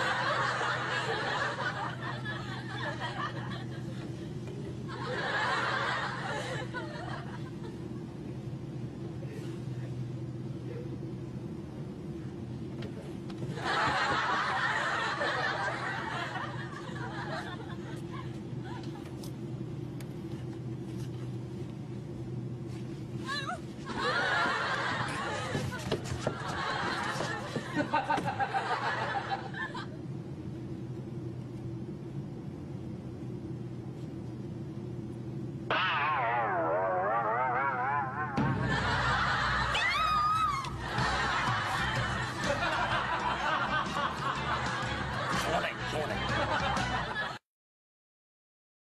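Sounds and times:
laughter: 0.0 - 8.1, 13.5 - 19.3, 23.2 - 30.0, 38.4 - 47.4
low hum: 0.0 - 47.4
woman squealing: 39.8 - 40.7.

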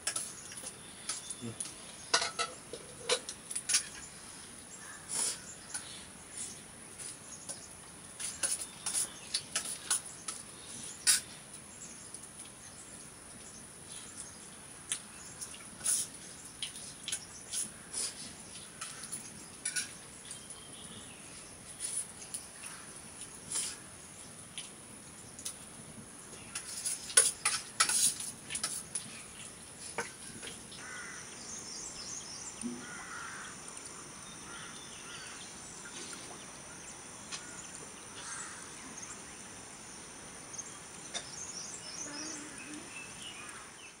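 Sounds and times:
metal spoons clinking on plates: 0.0 - 4.0
small birds chirping: 0.0 - 44.0.

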